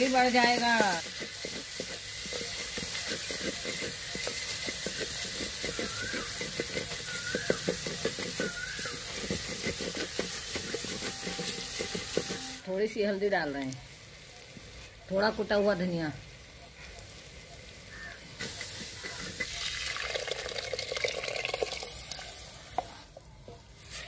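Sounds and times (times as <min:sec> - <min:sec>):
spoon scraping and tapping pan: 0:00.0 - 0:12.6, 0:18.4 - 0:19.6
food sizzling in hot oil: 0:00.0 - 0:24.0.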